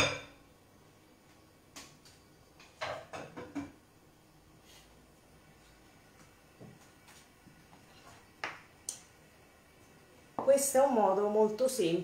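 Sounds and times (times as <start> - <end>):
cookware knocking and clinking: 0.0 - 0.4, 2.6 - 3.8.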